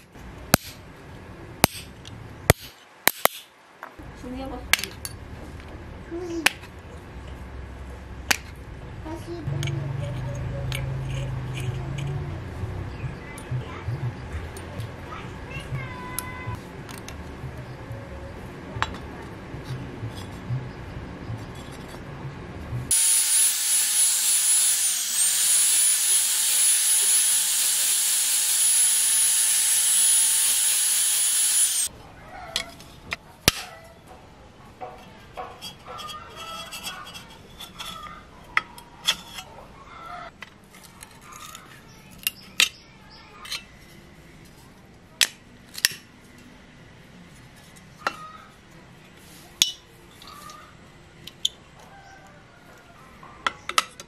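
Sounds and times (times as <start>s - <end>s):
metal parts clicking and knocking: 9.6s - 12.2s
power tool grinding metal: 22.9s - 31.9s.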